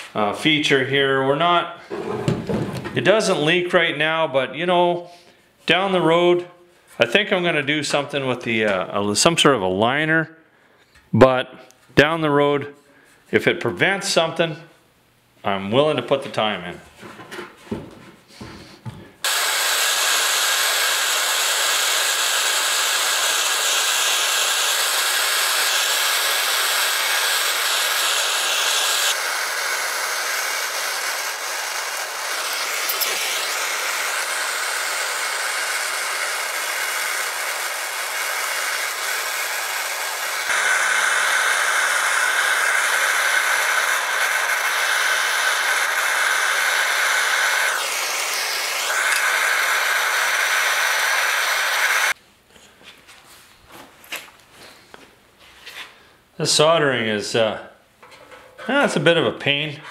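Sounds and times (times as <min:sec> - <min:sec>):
gas torch hissing: 0:19.2 - 0:52.2.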